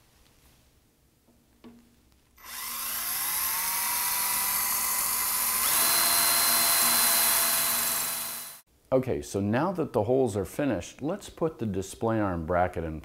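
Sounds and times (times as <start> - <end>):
cordless drill whining: 2.4 - 8.6.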